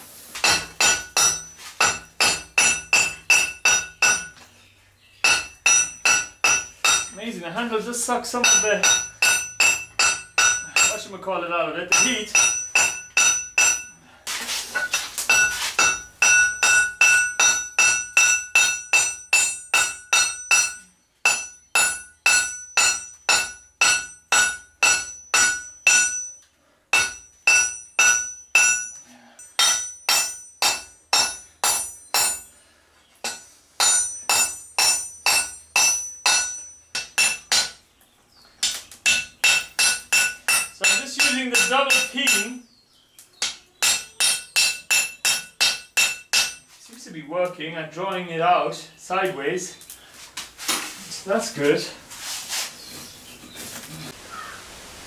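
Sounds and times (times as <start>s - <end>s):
hammer striking hot steel on anvil: 0.4s - 4.4s, 5.2s - 7.2s, 8.4s - 11.1s, 11.9s - 14.0s, 14.8s - 32.5s, 33.2s - 37.8s, 38.6s - 42.6s, 43.4s - 46.7s.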